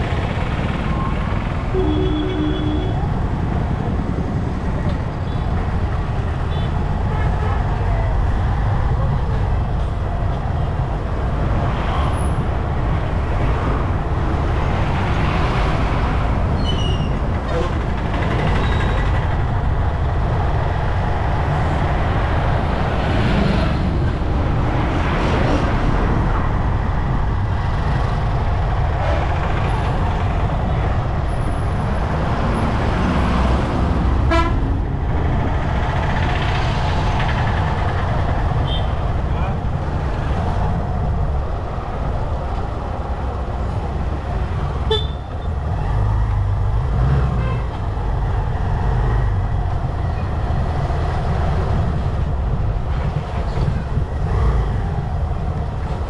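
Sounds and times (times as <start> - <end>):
motorbike wind and road noise: 0.0 - 56.0
vehicles passing: 0.0 - 56.0
vehicle horn toot: 1.7 - 3.0, 34.3 - 34.6, 44.9 - 45.3.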